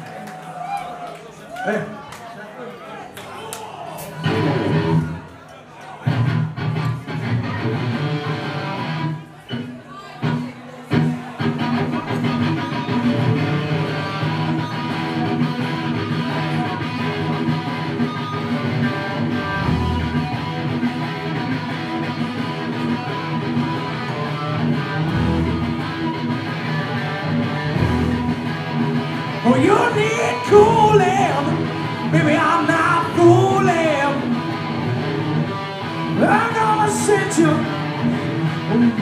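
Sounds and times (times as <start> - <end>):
bass guitar: 4.2 - 5.2, 11.0 - 39.0
electric guitar strumming chords: 10.9 - 39.0.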